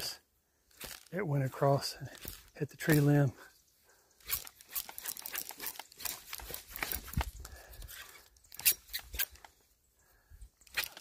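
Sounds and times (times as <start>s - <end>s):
fishing reel crackling and clicking: 4.2s - 7.4s.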